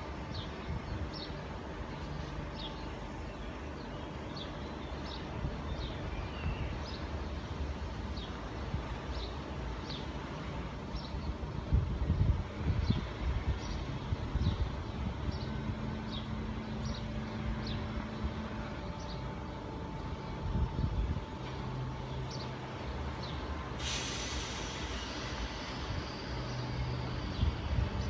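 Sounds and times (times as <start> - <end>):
electric train humming: 14.2 - 28.0
air brake hiss: 23.8 - 27.2.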